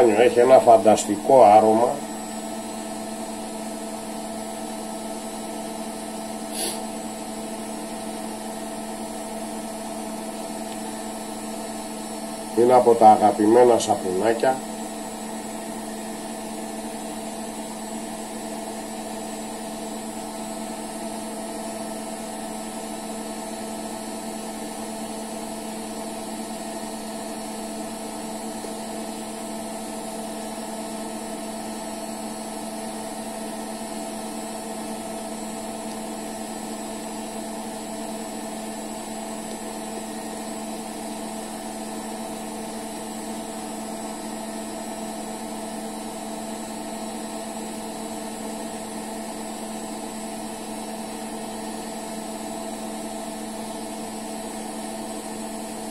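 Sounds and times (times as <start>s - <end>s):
small motor humming: 6.5s - 6.8s.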